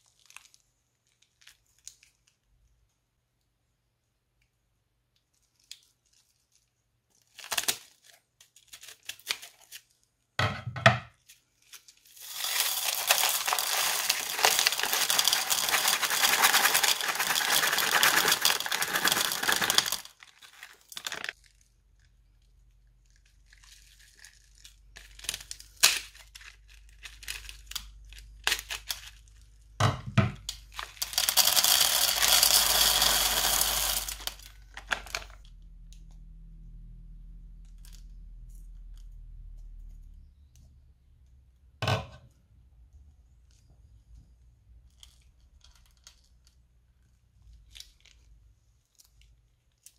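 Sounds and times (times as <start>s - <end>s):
plastic bag crinkling: 11.2s - 21.7s, 30.6s - 35.5s
beads pouring into a bowl: 12.1s - 21.4s, 30.6s - 35.4s
clicks of beads landing: 12.2s - 20.1s, 30.4s - 35.4s.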